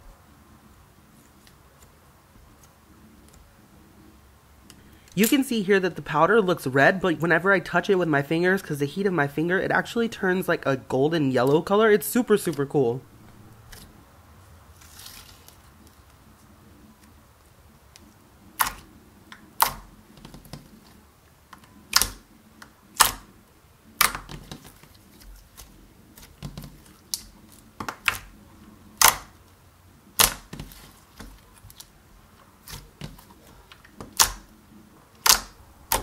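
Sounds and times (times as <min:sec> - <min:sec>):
slime squelching: 0:18.5 - 0:21.0, 0:35.2 - 0:36.0
slime clicking and popping: 0:18.6 - 0:19.8, 0:21.9 - 0:22.2, 0:23.0 - 0:23.3, 0:24.0 - 0:24.6, 0:27.1 - 0:28.3, 0:29.0 - 0:29.3, 0:30.2 - 0:30.5, 0:34.0 - 0:34.5, 0:35.2 - 0:36.0.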